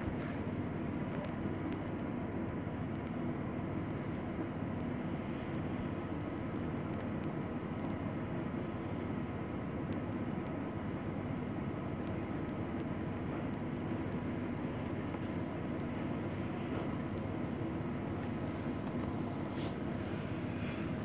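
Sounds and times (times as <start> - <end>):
low background rumble: 0.0 - 21.0
faint hiss: 16.1 - 21.0.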